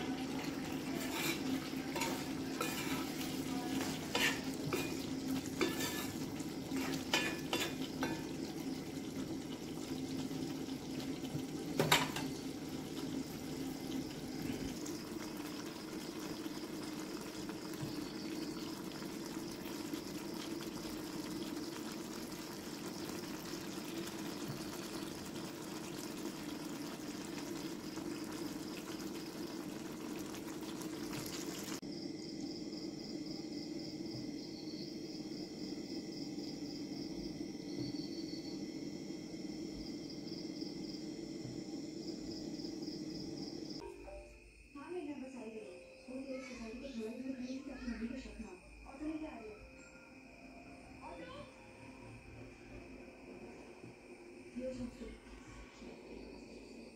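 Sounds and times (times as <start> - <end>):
curry sizzling: 0.0 - 44.4
metal ladle scraping a pan: 0.4 - 8.4.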